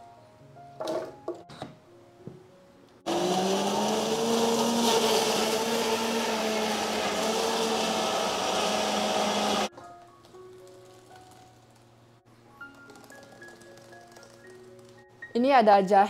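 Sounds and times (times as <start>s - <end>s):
blender whirring: 3.1s - 9.7s.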